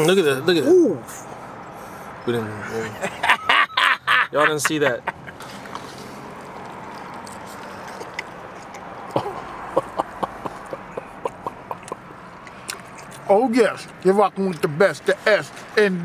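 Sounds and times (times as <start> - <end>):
person chewing with lip-smacking: 7.2 - 13.3.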